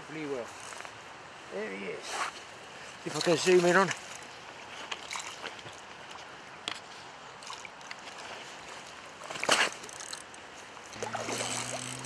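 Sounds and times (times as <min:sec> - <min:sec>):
fish splashing in water: 0:05.0 - 0:05.8, 0:10.9 - 0:12.0.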